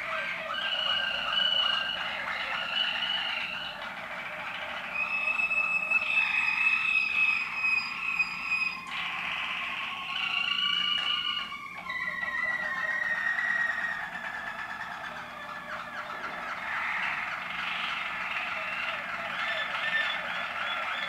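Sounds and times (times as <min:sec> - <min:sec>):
canary singing: 0:00.0 - 0:21.0.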